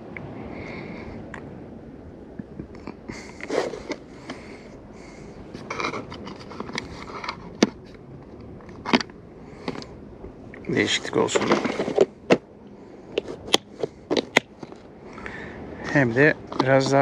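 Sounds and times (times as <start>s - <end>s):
fishing tackle rustling: 3.2s - 4.6s, 5.5s - 10.0s, 10.6s - 12.5s.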